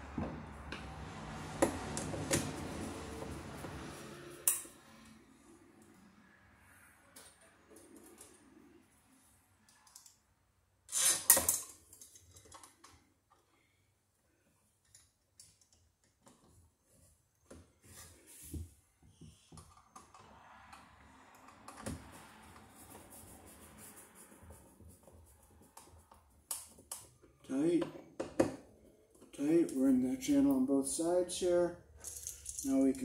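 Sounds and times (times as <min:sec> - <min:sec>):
small parts clicking and rattling: 0:32.0 - 0:33.0.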